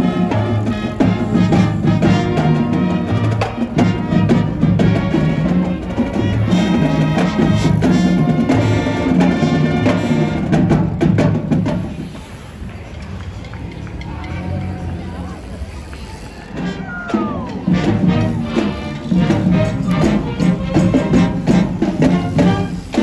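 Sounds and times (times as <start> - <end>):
background music with percussion: 0.0 - 12.0, 16.6 - 23.0.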